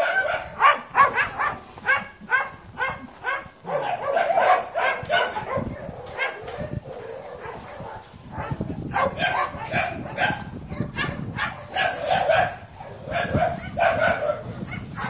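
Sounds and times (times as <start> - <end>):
dogs barking: 0.0 - 15.0.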